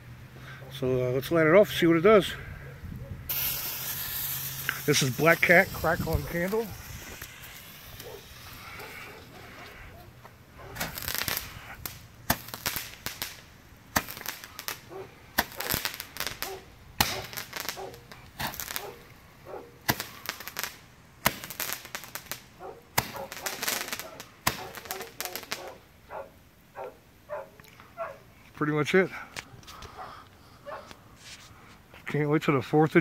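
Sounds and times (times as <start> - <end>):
firework pops with crackling: 3.3 - 9.8, 10.7 - 19.1, 19.8 - 25.8
fuse hissing: 3.3 - 10.0.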